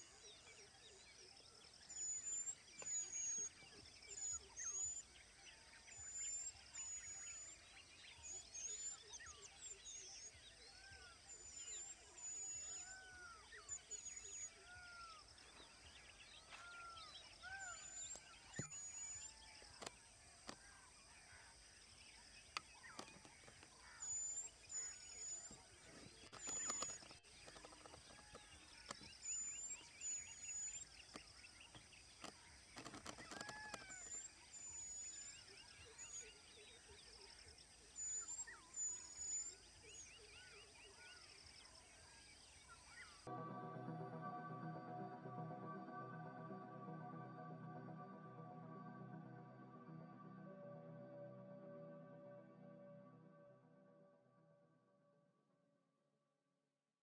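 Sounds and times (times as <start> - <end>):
birds whistling and chirping: 1.7 - 19.9, 22.5 - 36.9, 37.7 - 41.2.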